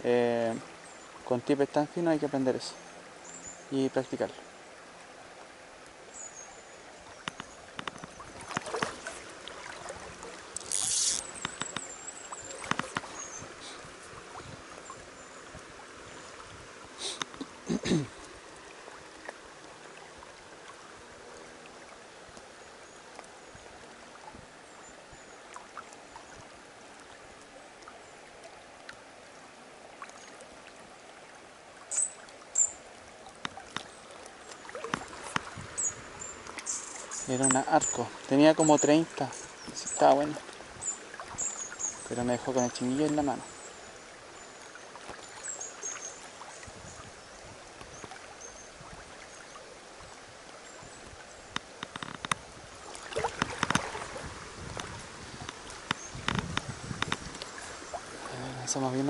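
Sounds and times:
river flowing: 0.0 - 59.0
small clicks and taps: 7.2 - 8.9, 51.5 - 52.4, 53.4 - 53.8.

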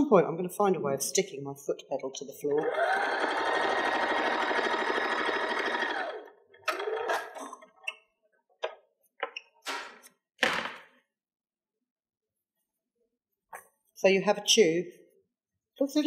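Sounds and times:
sewing machine stitching: 2.6 - 7.6.

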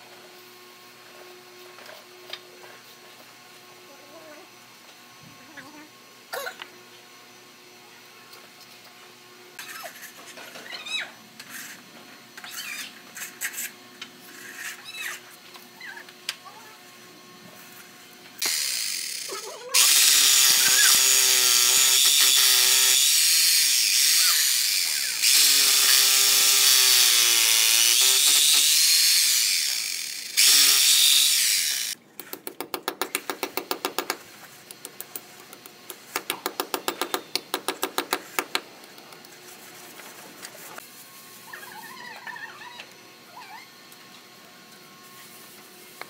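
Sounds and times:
rotary hammer drill boring: 18.4 - 32.0.

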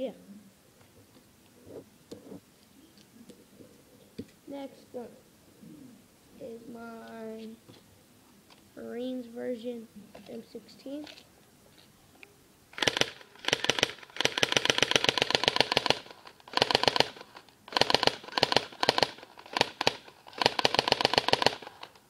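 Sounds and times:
electric airsoft gun firing bursts: 12.7 - 22.0.

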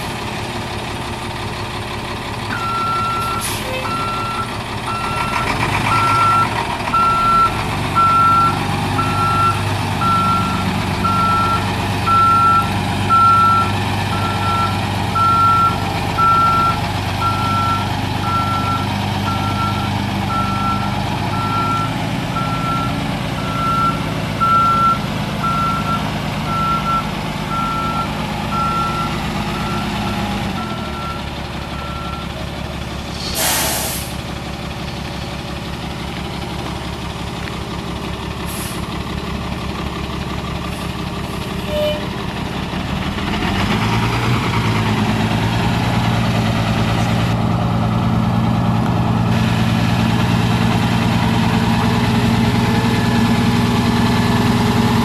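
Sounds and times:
diesel truck engine running: 0.0 - 55.0
air brakes hissing: 3.2 - 3.8, 33.1 - 34.2, 38.5 - 38.9.

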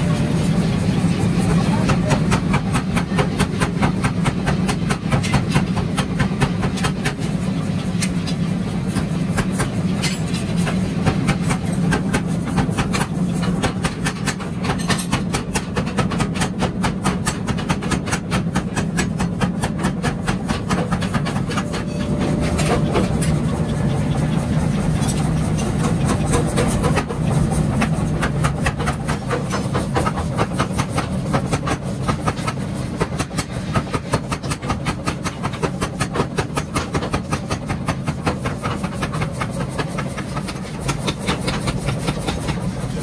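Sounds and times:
workshop machinery hum: 0.0 - 43.0
hammer striking hot steel on anvil: 1.4 - 43.0.

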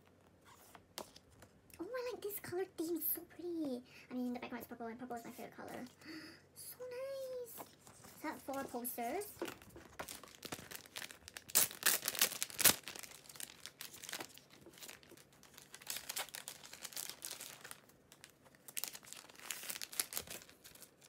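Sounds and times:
paper posters crinkling and rustling: 7.0 - 21.0.

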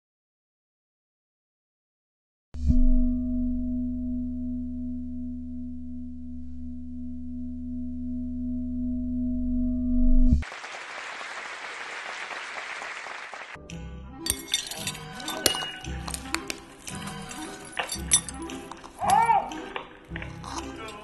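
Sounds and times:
electronic drone with low hum: 2.8 - 10.4
glassy clinks and ringing tones: 14.2 - 21.0.

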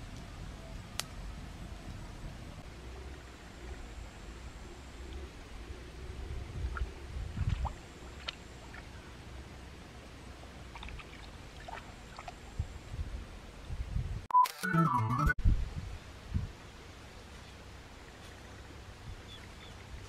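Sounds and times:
shallow stream rumbling: 0.0 - 13.7, 16.0 - 20.0
wind on microphone: 5.0 - 8.2, 12.2 - 14.3, 15.4 - 16.6, 18.9 - 20.0.

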